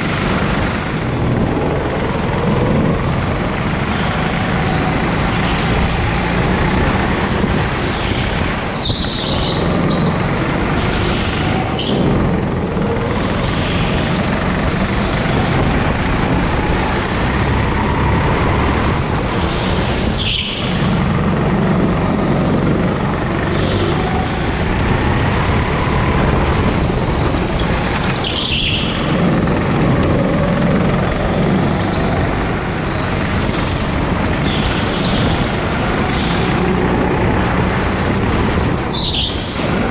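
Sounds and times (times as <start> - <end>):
go-kart engine at speed: 0.0 - 39.9
high-pitched tire squeals: 3.8 - 14.4, 18.9 - 21.6, 22.4 - 37.0, 38.8 - 39.9.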